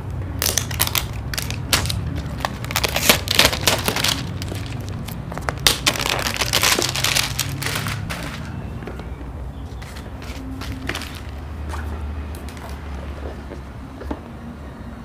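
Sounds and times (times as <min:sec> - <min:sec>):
plastic wrap crinkling and tearing: 0:00.4 - 0:08.5.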